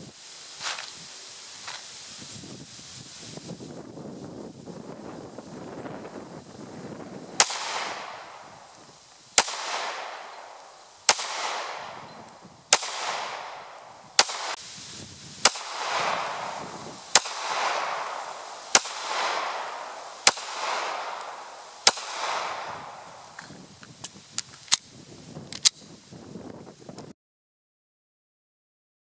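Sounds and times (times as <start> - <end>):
pistol shots echoing: 7.4 - 8.5, 9.4 - 12.1, 12.7 - 14.6, 15.5 - 23.4.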